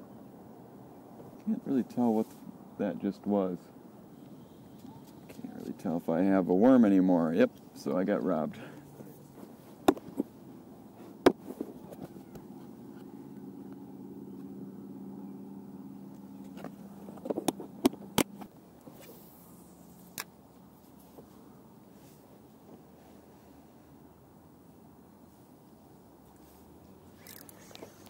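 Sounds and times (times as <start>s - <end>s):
faint low engine hum: 0.0s - 28.0s
fishing gear clicking and clattering: 27.2s - 28.0s.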